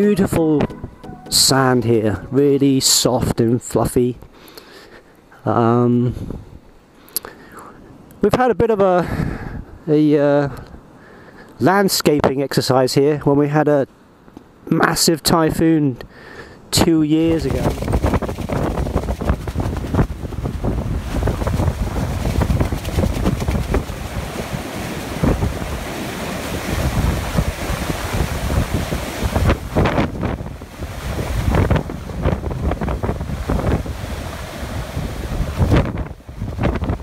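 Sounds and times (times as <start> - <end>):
wind gusting on microphone: 6.1 - 6.7, 17.2 - 37.0
heavy surf breaking on beach: 17.2 - 37.0.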